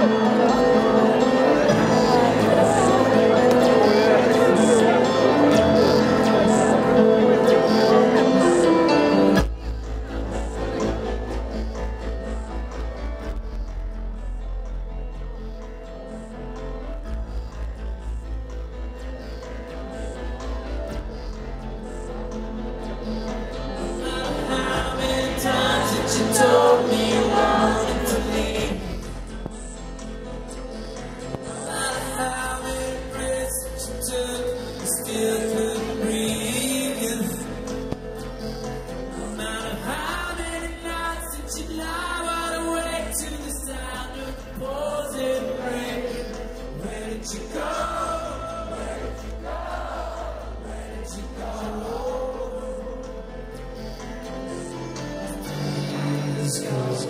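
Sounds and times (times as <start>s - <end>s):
live rock band with singing: 0.0s - 57.0s.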